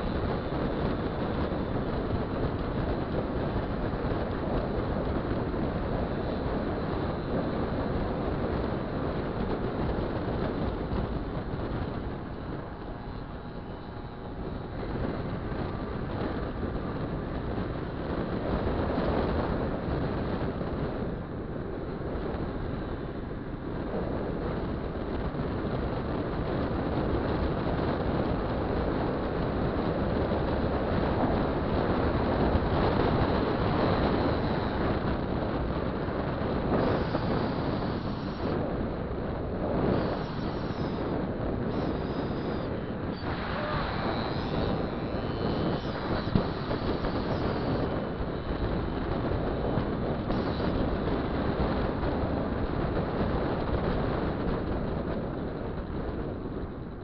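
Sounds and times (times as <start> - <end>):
two-stroke scooter engine: 0.0 - 19.9, 28.3 - 53.0
wind rushing over microphone: 0.0 - 57.0.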